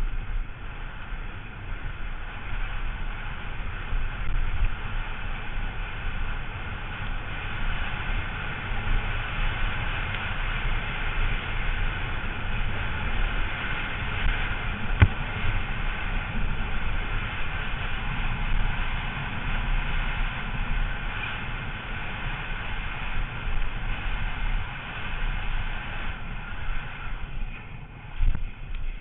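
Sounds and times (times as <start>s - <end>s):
bike tyres rumbling on gravel: 0.0s - 29.0s
rushing wind: 0.0s - 29.0s
sharp knock: 15.0s - 15.2s.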